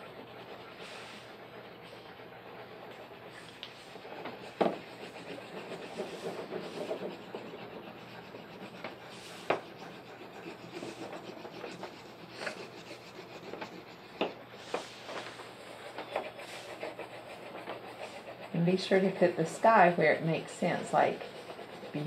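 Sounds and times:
crayon rubbing on paper: 3.1 - 22.0.

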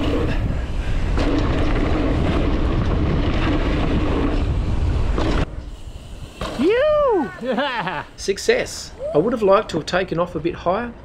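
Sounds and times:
wind buffeting microphone: 0.0 - 7.3
bike tyres rolling over dirt: 0.0 - 10.6.

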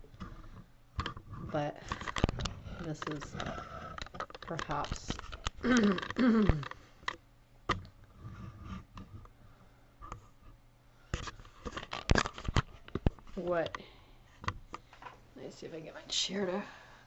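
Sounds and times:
person making wordless sounds: 4.4 - 6.8.

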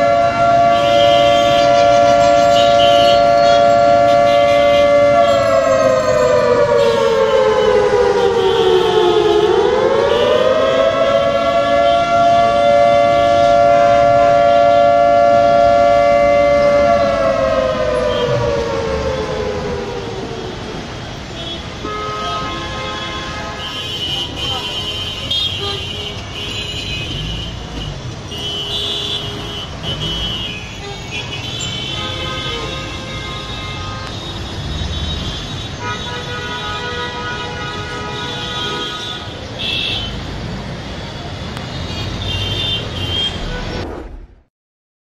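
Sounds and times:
loud wailing siren: 0.0 - 22.6, 32.0 - 36.0.

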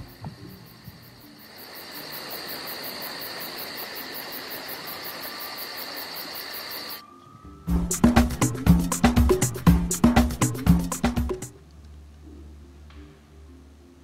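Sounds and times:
insects trilling: 0.0 - 9.2
background hiss: 0.0 - 14.0.

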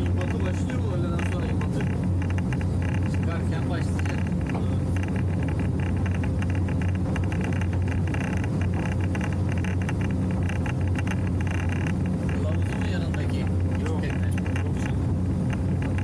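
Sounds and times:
motorboat engine drone: 0.0 - 16.0
water along boat hull: 0.0 - 16.0.

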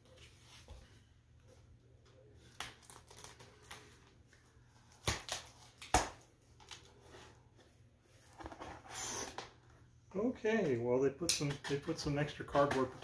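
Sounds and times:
cardboard scraping and rustling: 8.2 - 9.4.

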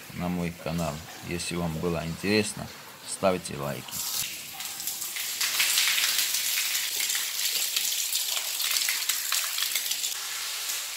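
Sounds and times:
hose water spraying on tiles: 3.6 - 10.9.

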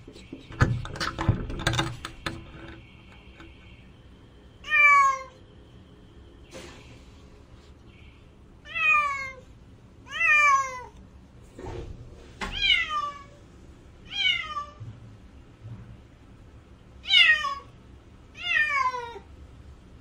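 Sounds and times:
cat meowing: 8.6 - 9.4, 10.1 - 11.0, 12.5 - 13.4, 14.1 - 14.8, 18.4 - 19.2.

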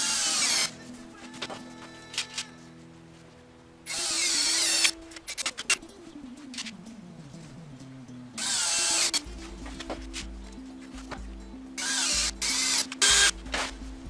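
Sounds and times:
power tool whining: 0.0 - 2.5, 3.9 - 5.7, 8.4 - 9.3, 11.8 - 13.7
background music: 0.0 - 14.0.

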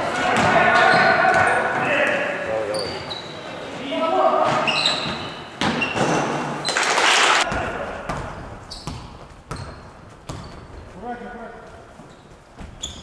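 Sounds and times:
basketball bouncing on wooden floor: 7.5 - 10.9.

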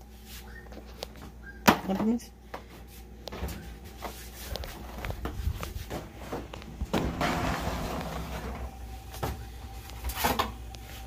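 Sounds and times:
foil pan scraping on wire rack: 7.0 - 8.7.

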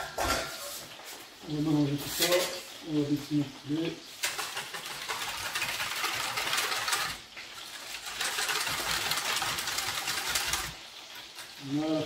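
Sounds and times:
whisk scraping metal bowl: 4.1 - 10.8.

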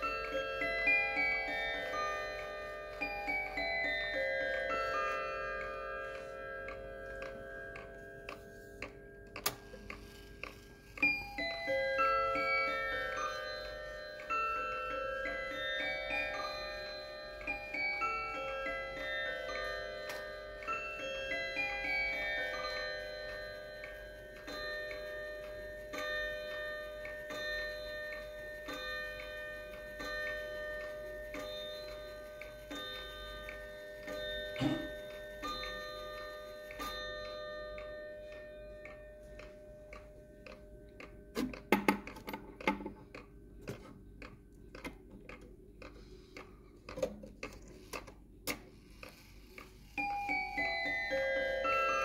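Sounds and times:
clock chime rods ringing: 0.0 - 41.4, 49.1 - 52.0
irregular clicks and knocks: 28.0 - 51.2.

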